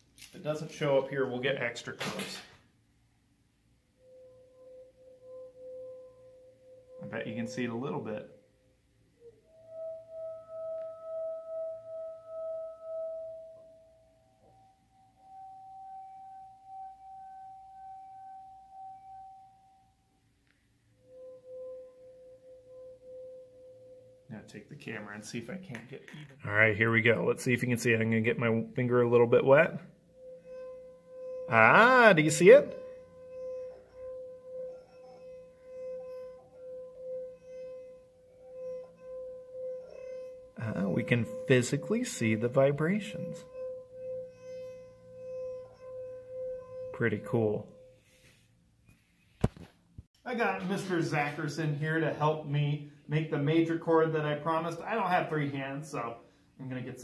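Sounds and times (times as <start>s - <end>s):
singing wine glass tones: 4.0s - 25.9s, 27.0s - 48.4s.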